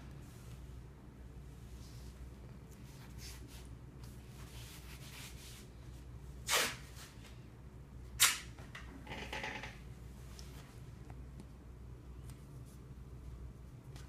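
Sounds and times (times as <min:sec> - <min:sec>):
tape ripping off roll: 0:06.4 - 0:06.9.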